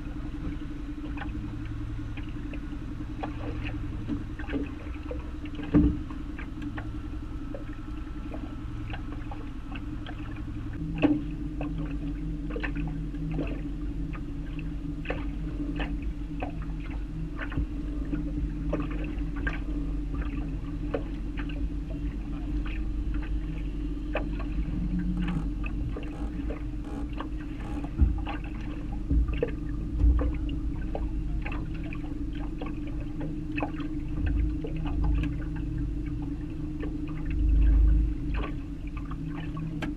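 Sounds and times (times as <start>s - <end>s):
boat motor running: 0.0s - 39.9s
water slapping metal hull: 0.0s - 39.9s
low knocks: 3.2s - 6.9s, 24.1s - 33.4s.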